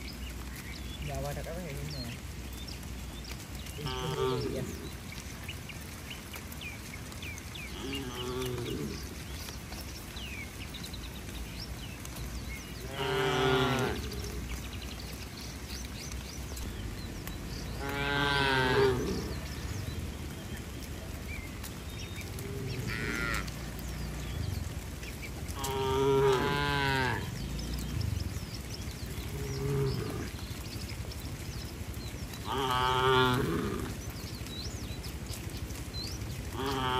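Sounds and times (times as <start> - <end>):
cow mooing: 12.9 - 14.2, 17.8 - 19.4, 22.4 - 23.6, 25.6 - 27.4, 32.5 - 33.9.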